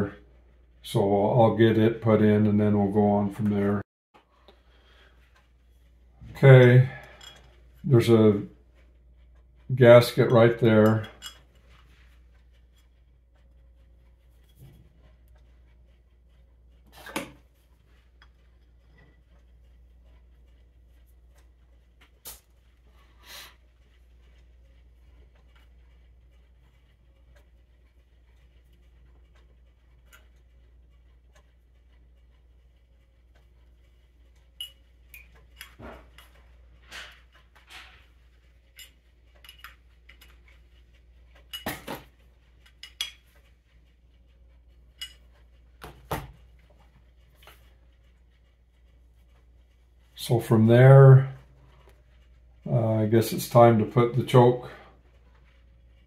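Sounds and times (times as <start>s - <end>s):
metal tools and parts clinking: 6.8s - 7.9s, 10.0s - 11.6s, 34.6s - 40.6s, 41.4s - 43.4s, 44.9s - 45.4s.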